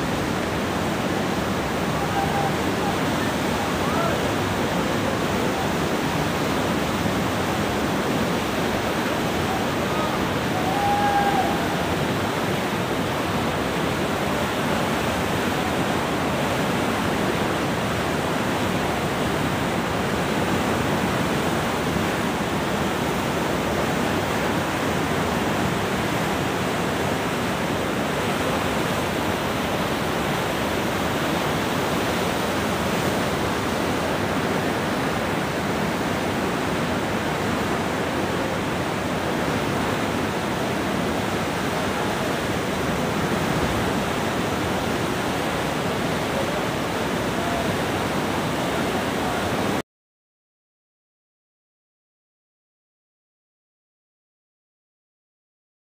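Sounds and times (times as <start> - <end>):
rushing flood water: 0.0 - 49.8.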